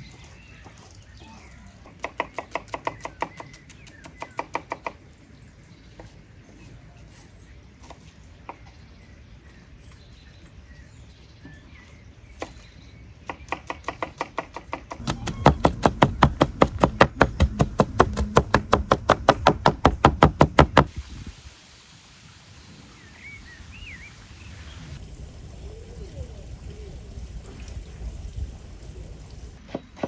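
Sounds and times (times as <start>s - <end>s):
cleavers chopping on wooden board: 13.3s - 20.9s.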